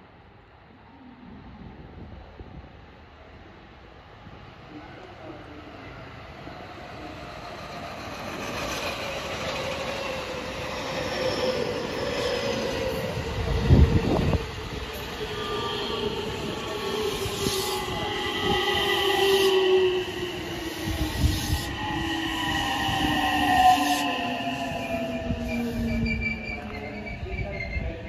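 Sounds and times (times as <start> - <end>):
electric train running noise: 6.2 - 28.0.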